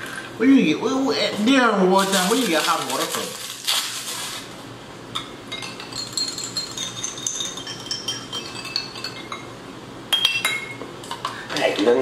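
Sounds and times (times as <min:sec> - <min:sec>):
spoon clinking in a glass: 0:05.2 - 0:10.8.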